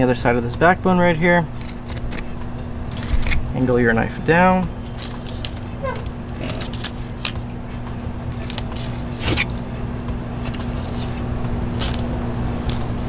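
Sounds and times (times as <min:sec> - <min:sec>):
low hum: 0:00.0 - 0:13.0
blade scraping: 0:04.8 - 0:09.8
knife slicing fish flesh: 0:08.2 - 0:09.7.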